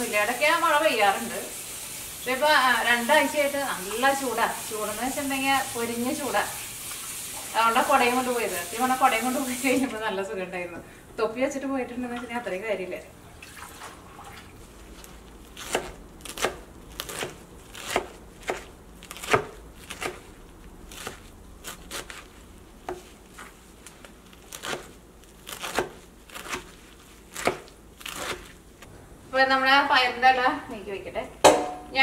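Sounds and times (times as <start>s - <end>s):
knife chopping on wooden board: 15.6s - 20.2s, 24.5s - 28.6s.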